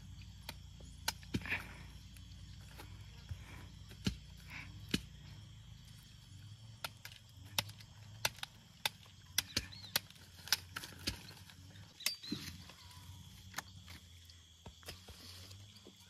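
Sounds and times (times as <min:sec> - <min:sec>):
cassava cracking being cut: 0:02.5 - 0:05.2, 0:06.0 - 0:12.6.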